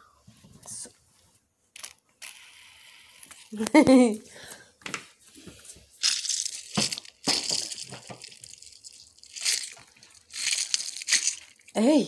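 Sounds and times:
fidget toys scratchy handling: 1.8 - 3.7, 6.0 - 11.8.

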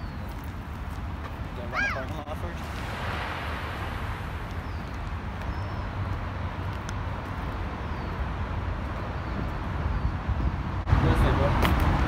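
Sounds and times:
skateboard wheels rolling on asphalt: 0.0 - 12.0.

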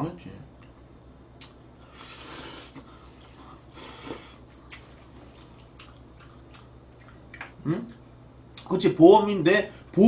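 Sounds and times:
soft chewing: 2.7 - 8.7.

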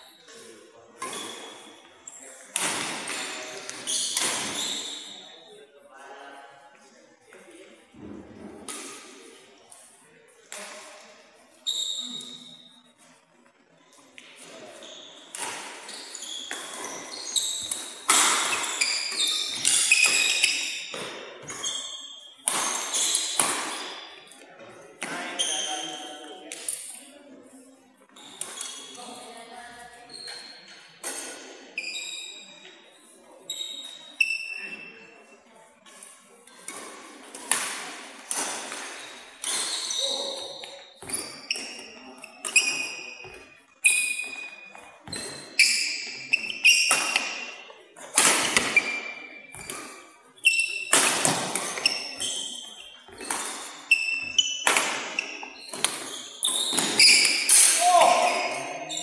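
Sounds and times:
shoes squeaking on sports floor: 0.0 - 5.6, 10.5 - 27.2, 28.0 - 59.0
racket hitting shuttlecock: 2.5 - 5.1, 15.3 - 24.1, 36.7 - 50.0, 50.6 - 59.0.

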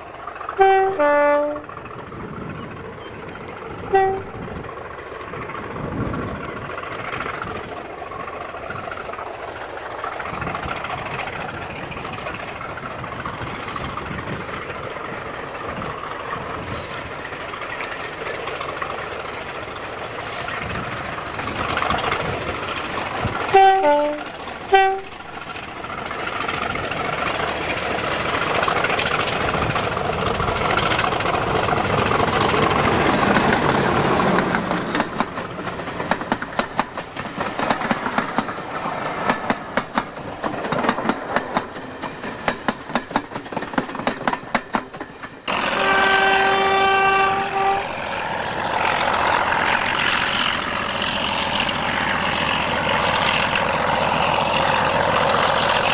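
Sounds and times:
diesel locomotive engine: 0.0 - 55.9
two-tone train horn: 0.6 - 1.7, 3.9 - 4.6, 23.5 - 25.2, 45.5 - 48.0.

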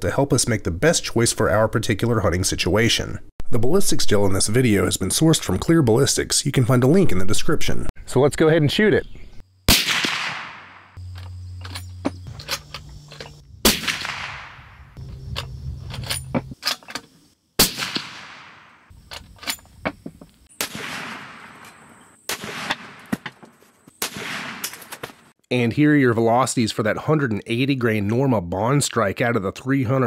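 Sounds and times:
suppressed rifle shots echoing: 9.7 - 11.0, 13.6 - 15.0, 17.6 - 18.9, 20.6 - 23.2, 24.0 - 25.0.

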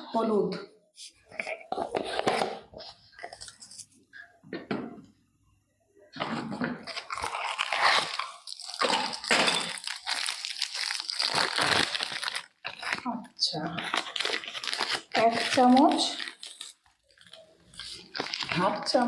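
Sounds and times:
dry crinkling and crunching: 6.8 - 19.0.

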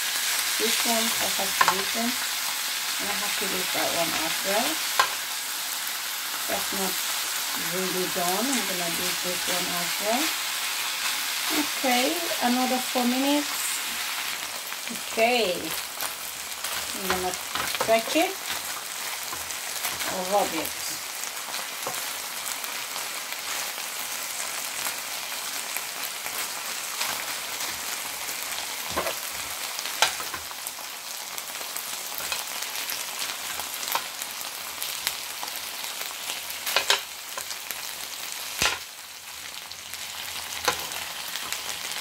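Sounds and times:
chicken sizzling in a grill pan: 0.0 - 42.0
tongs clicking and scraping on pan: 4.8 - 5.3, 15.4 - 20.8, 28.8 - 30.5, 32.2 - 32.6, 36.3 - 37.6, 38.6 - 38.8, 40.4 - 41.7.

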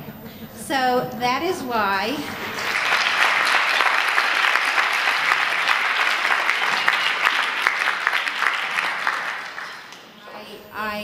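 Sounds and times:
audience applauding: 2.2 - 10.2.

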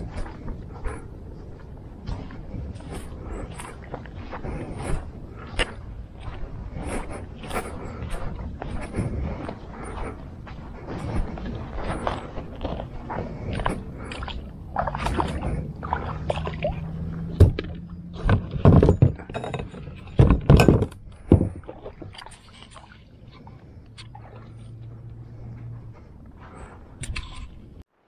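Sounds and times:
loud thumps: 17.3 - 21.6.

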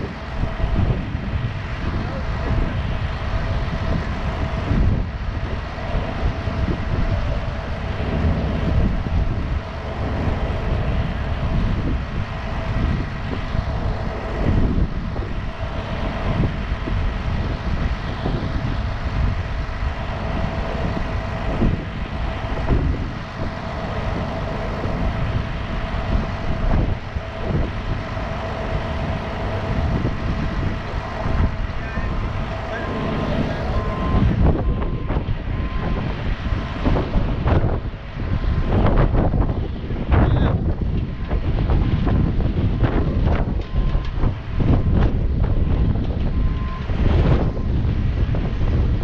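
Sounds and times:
diesel truck engine idling: 0.0 - 48.6
constant engine whine: 0.0 - 49.0.

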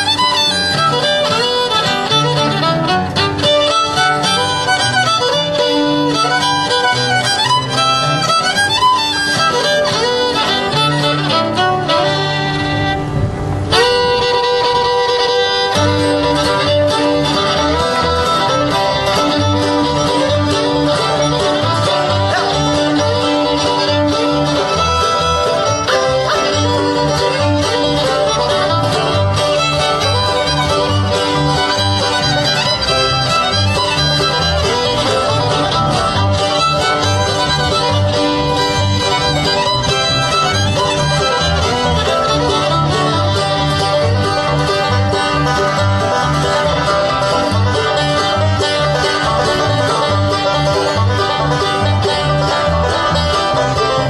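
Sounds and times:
acoustic guitar: 0.0 - 54.0
banjo: 0.0 - 54.0
fiddle: 0.0 - 54.0
upright bass: 0.0 - 54.0.

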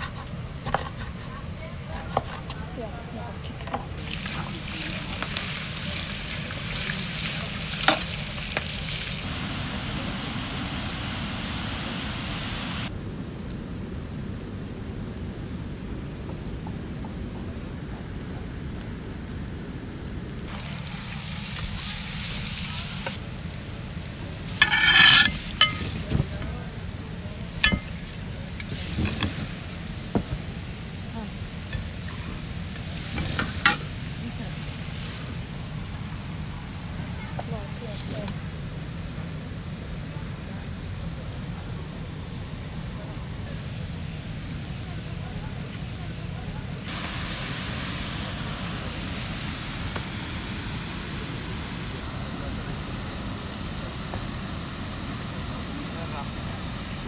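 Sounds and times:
fish sizzling in oil: 4.0 - 12.9, 20.5 - 51.2
metal basket scraping and rattling: 24.6 - 26.1
water rushing from dam outlet: 40.1 - 57.0.

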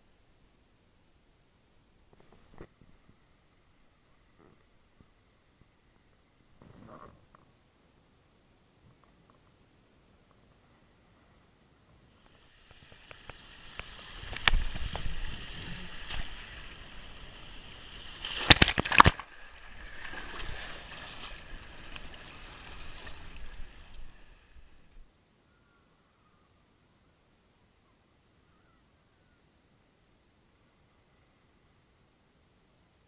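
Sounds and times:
rider sliding down water slide: 12.2 - 24.9.

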